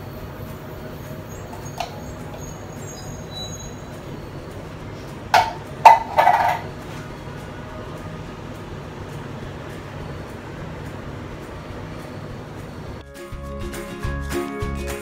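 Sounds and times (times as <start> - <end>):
tin can clinking on countertop: 5.4 - 6.8.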